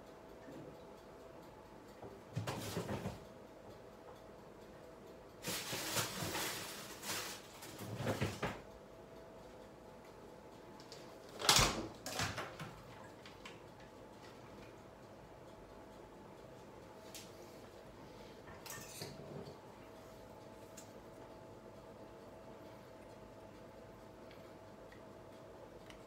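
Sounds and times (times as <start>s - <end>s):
rustling and scraping: 5.4s - 8.6s.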